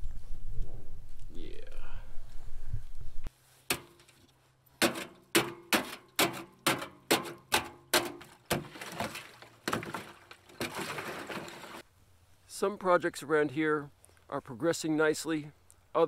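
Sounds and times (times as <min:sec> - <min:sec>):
stick knocking on icy metal tank: 0:04.8 - 0:11.0.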